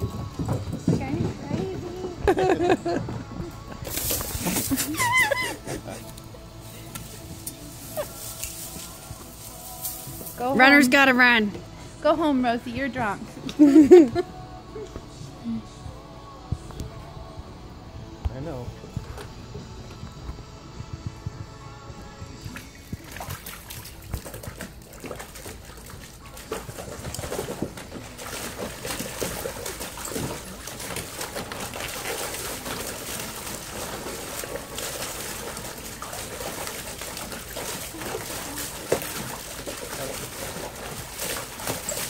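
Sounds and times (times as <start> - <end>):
dog splashing water: 3.6 - 11.0, 22.4 - 42.0.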